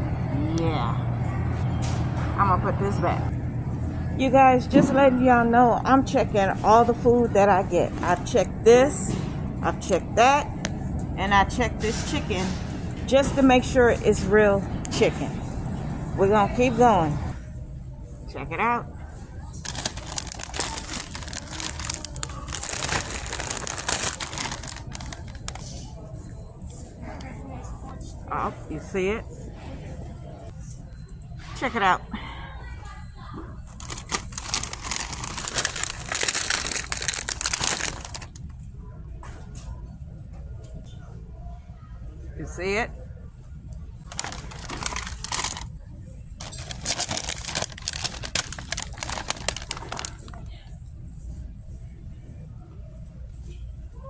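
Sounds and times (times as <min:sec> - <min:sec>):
low steady hum: 0:13.8 - 0:54.0
plastic wrapper crinkling: 0:19.6 - 0:25.7, 0:33.8 - 0:38.4, 0:44.1 - 0:45.7, 0:46.4 - 0:50.4.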